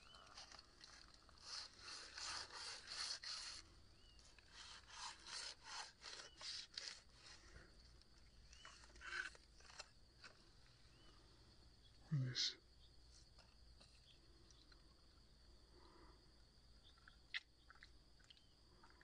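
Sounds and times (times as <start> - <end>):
machete sawing into pineapple: 1.4 - 3.6, 4.5 - 7.3.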